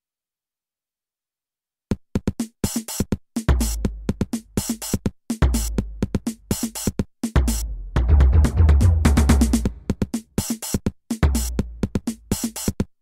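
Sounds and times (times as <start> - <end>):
drum machine hits: 1.9 - 12.9
deep bass notes: 7.6 - 9.9.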